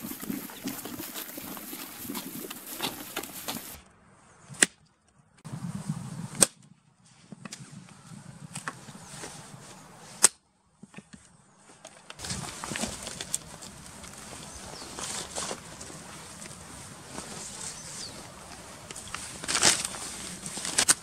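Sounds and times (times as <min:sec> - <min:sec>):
twigs rustling and clattering: 0:00.0 - 0:03.8, 0:11.7 - 0:21.0
dry sticks snapping: 0:11.9 - 0:14.5, 0:18.5 - 0:21.0.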